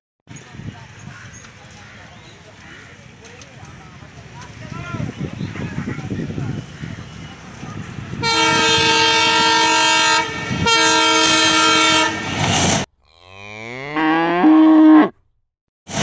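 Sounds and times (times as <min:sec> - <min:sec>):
locomotive horn blasts: 0:08.2 - 0:12.4
cow mooing: 0:13.0 - 0:15.2.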